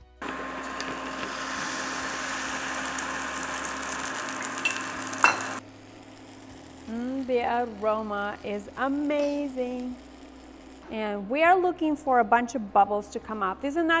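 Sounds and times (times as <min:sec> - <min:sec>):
batter sizzling in hot oil: 0:00.3 - 0:10.8.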